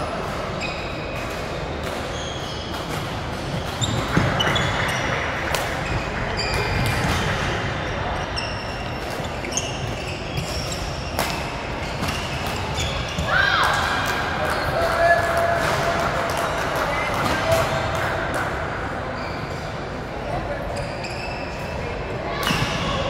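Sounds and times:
shoes squeaking on court: 0.5 - 13.6, 19.2 - 19.8, 20.7 - 21.8.

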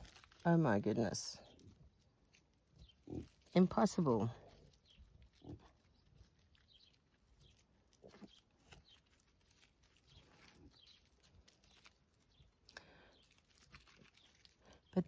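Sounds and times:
piglets grunting and snuffling: 1.4 - 12.4.

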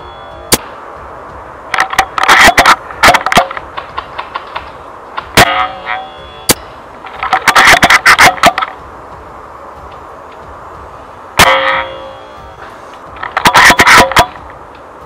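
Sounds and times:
sharp ringing hit: 11.4 - 12.8.

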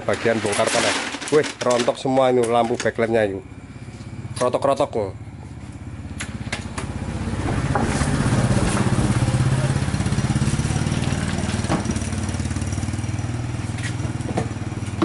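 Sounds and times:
small engine running: 5.3 - 15.0.

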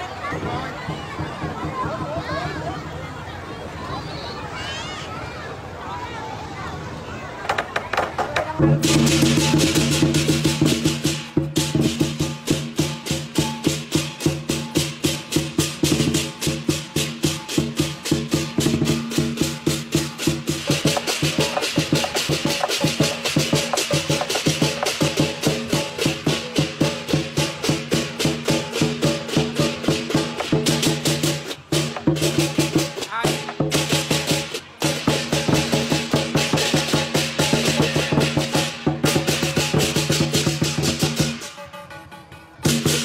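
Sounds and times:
drum beats: 0.0 - 3.0, 7.4 - 43.0.

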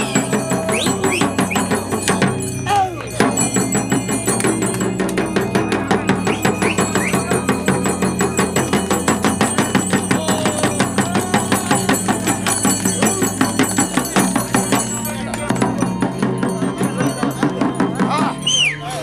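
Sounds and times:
frame drum beaten fast: 0.0 - 18.4.

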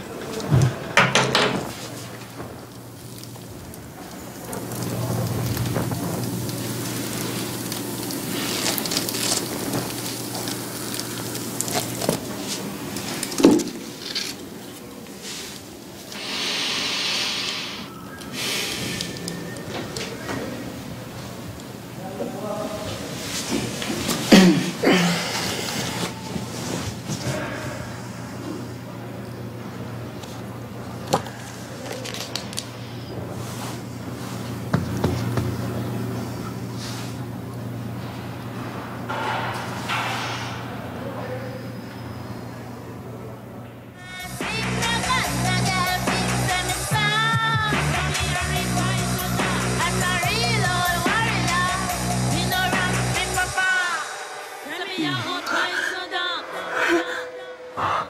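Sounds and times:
low room tone hum: 0.0 - 53.7
paper burning and crackling: 1.6 - 21.3, 30.2 - 37.6
rushing hiss: 2.0 - 20.1.

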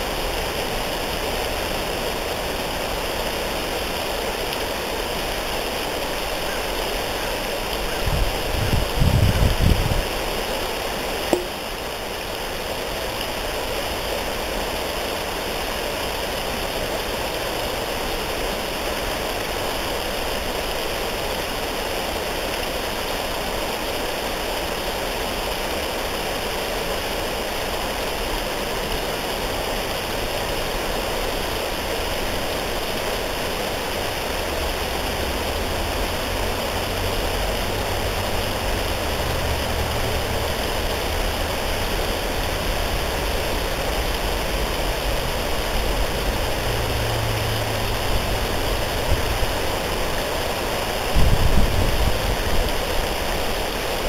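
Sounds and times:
flowing water rushing: 0.0 - 54.0
brief click: 11.3 - 11.6.

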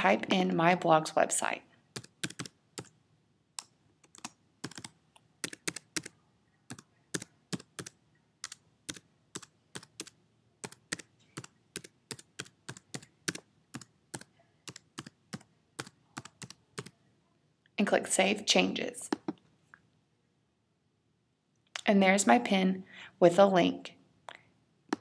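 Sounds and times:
computer keyboard typing: 1.9 - 3.0, 3.6 - 16.9.

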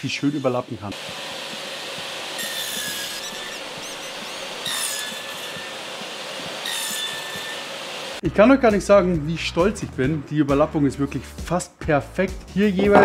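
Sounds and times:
saw cutting wood whine: 0.0 - 8.2
table saw running: 0.0 - 8.2.

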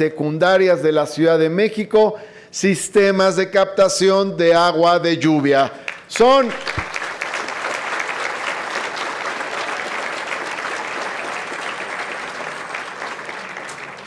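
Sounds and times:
audience applauding: 5.9 - 14.0.

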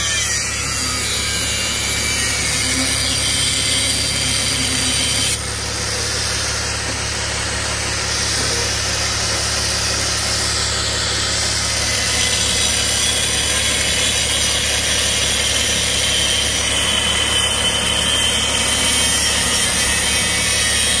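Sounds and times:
angle grinder cutting metal: 0.0 - 21.0.

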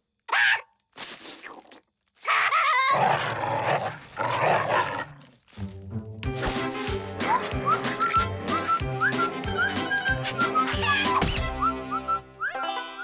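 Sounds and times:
cartoon voices growling and snarling: 2.2 - 5.3
music: 5.5 - 13.0.

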